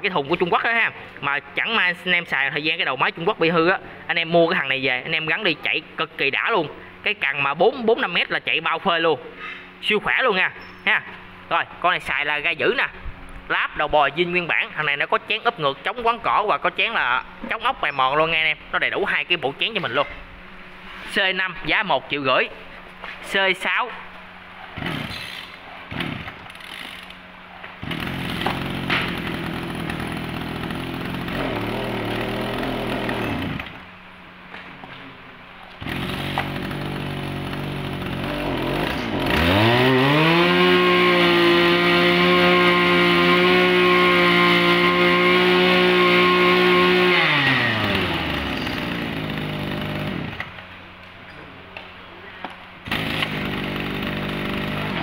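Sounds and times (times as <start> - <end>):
two-stroke engine revving: 24.8 - 27.2, 27.8 - 33.9, 35.8 - 50.6, 52.8 - 55.0.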